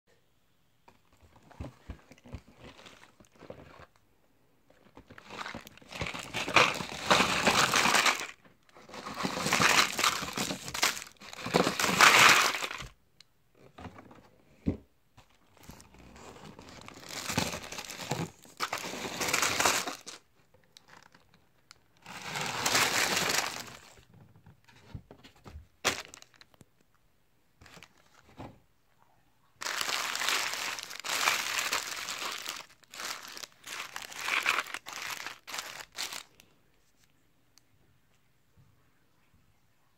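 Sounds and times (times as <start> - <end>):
candy wrappers crinkling: 5.0 - 13.0, 16.5 - 21.4, 22.0 - 24.1, 25.8 - 26.6, 29.6 - 36.4.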